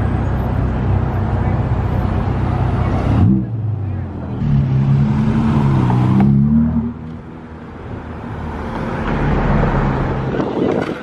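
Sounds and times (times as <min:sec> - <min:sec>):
road traffic: 0:00.0 - 0:11.0
sports car engine passing: 0:02.2 - 0:07.6.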